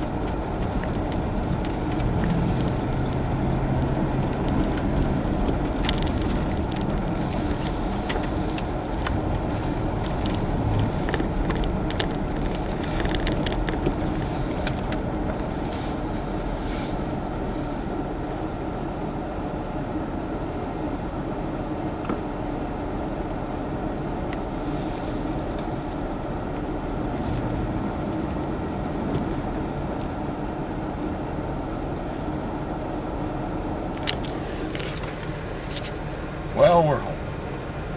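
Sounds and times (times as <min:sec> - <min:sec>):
crackles and clicks: 0:00.0 - 0:16.5, 0:26.4 - 0:36.2
car engine and tyre noise: 0:00.0 - 0:37.9.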